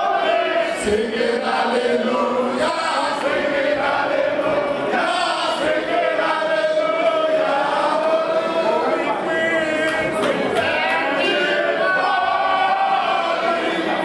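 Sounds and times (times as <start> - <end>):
men chanting in unison: 0.0 - 14.0.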